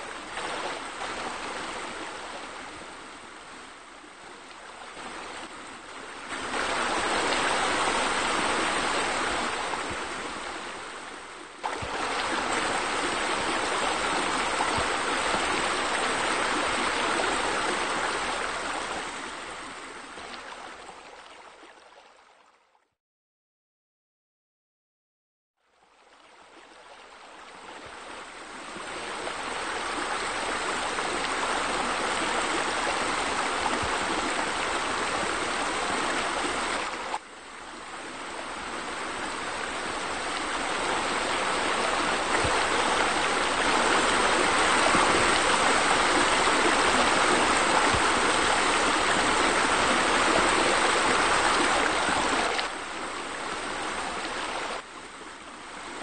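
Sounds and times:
waterfall rushing into pool: 6.1s - 20.5s, 28.2s - 56.0s.

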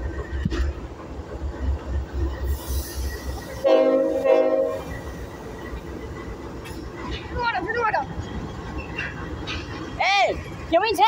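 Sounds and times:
locomotive air horn chord: 3.6s - 4.8s.

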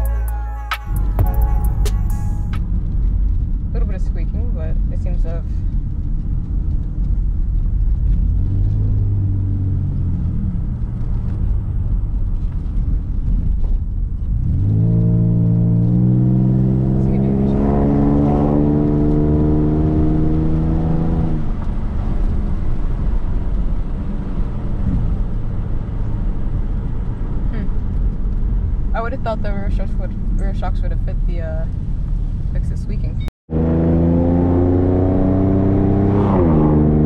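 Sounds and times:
car engine accelerating: 0.0s - 31.0s, 32.5s - 37.0s
road rumble: 0.0s - 37.0s.

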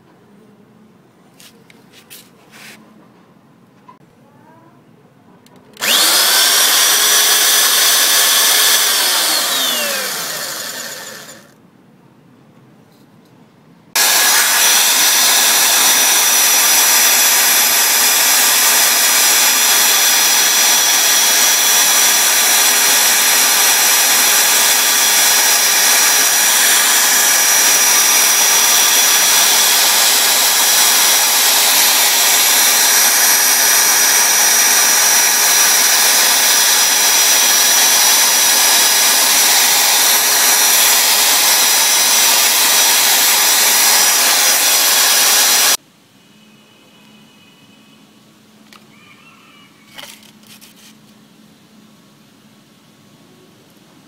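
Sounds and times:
electric drill whining: 5.8s - 11.6s, 14.0s - 45.8s.

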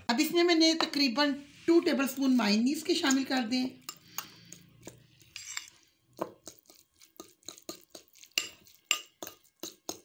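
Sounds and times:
fork scraping ceramic bowl: 3.8s - 10.0s.

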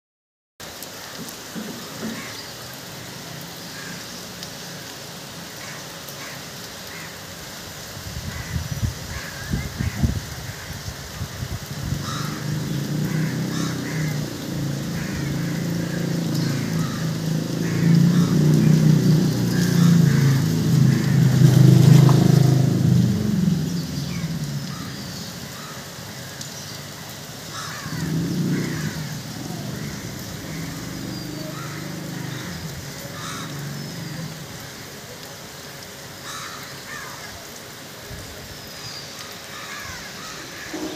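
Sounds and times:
rain on roofs and trees: 0.6s - 40.9s
crows cawing: 1.8s - 2.5s, 3.7s - 4.1s, 5.5s - 7.2s, 8.3s - 11.3s, 12.0s - 22.2s, 24.0s - 26.5s, 27.4s - 34.9s, 36.2s - 37.5s, 39.2s - 40.9s.

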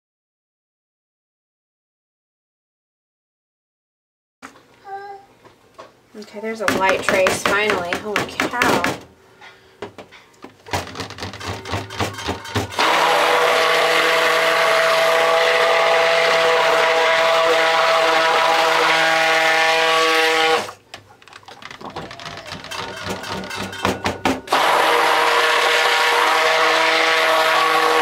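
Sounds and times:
stick blender running: 10.7s - 20.8s, 21.6s - 28.0s
light knocks and clatter: 20.9s - 24.5s.

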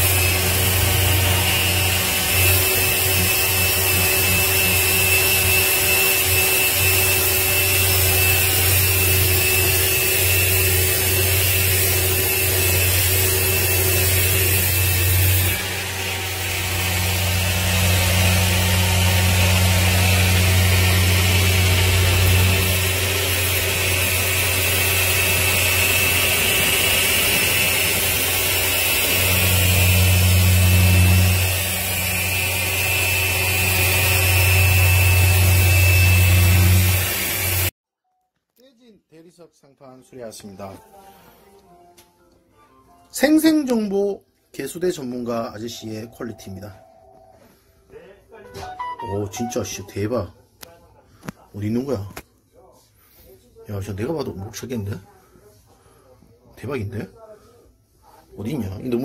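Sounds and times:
electric motor droning: 0.0s - 37.7s.

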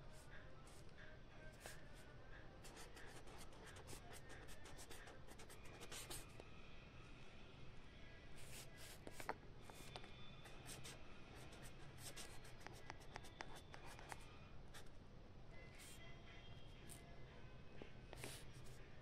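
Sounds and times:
pen scratching on paper: 2.6s - 6.3s, 8.4s - 14.9s, 18.1s - 18.8s.

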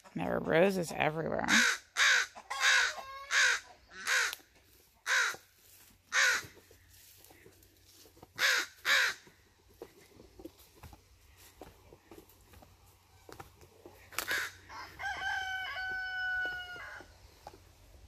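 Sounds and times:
crows cawing: 1.5s - 5.5s, 6.1s - 7.4s, 8.3s - 9.3s, 14.0s - 17.1s.

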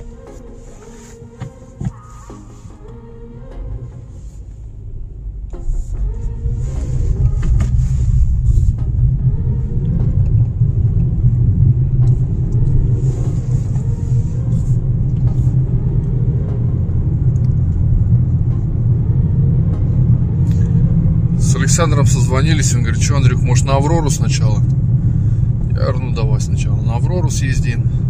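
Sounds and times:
car engine rumble from inside: 0.0s - 28.0s
tyre noise on road: 4.4s - 23.2s.

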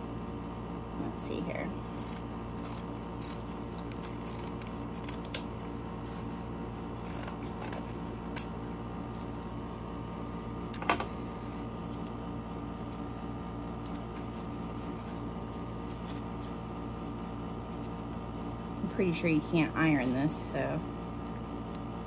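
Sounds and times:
steady hum: 0.0s - 22.0s
scissors snipping canvas: 1.9s - 5.5s, 7.0s - 8.5s.

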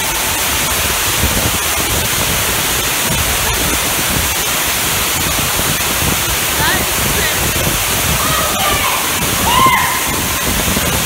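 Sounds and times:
waterfall rushing: 0.0s - 11.0s.

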